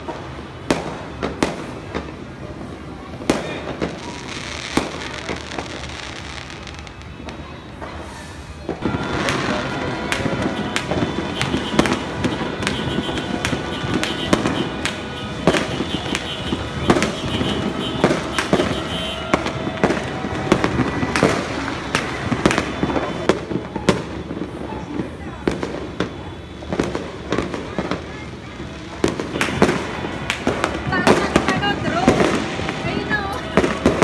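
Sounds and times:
fireworks bangs: 0.0s - 34.0s
fireworks crackling and hiss: 0.0s - 34.0s.

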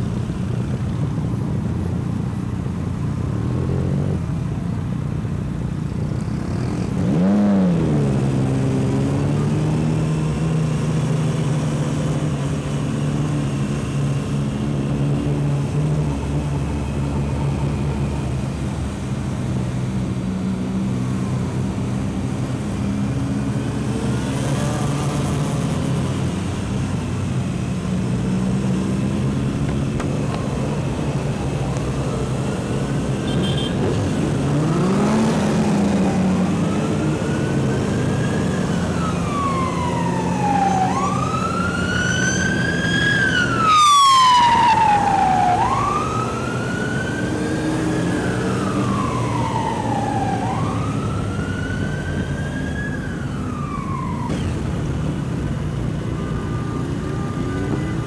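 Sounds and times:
emergency siren wailing: 34.6s - 55.3s, 56.0s - 58.0s.

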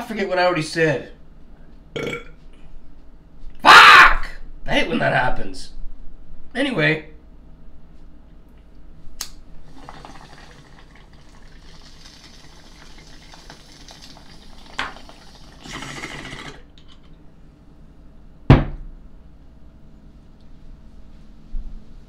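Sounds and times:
water bubbling in a bong: 9.7s - 16.7s.

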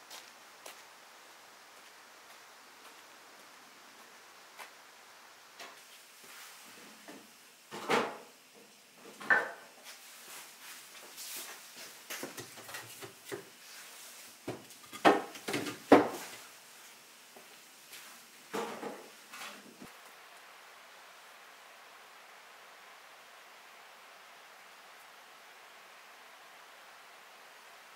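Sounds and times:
logs knocking on wood: 14.5s - 16.2s.

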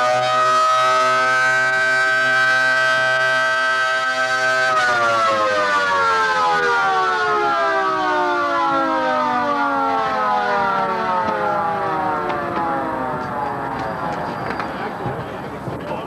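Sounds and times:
warning siren winding down: 0.0s - 14.8s.

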